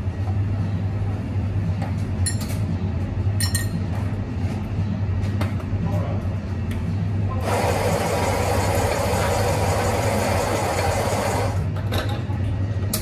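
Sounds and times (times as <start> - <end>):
steady low hum: 0.0 - 7.6, 11.4 - 13.0
electric coffee grinder running: 7.4 - 11.6.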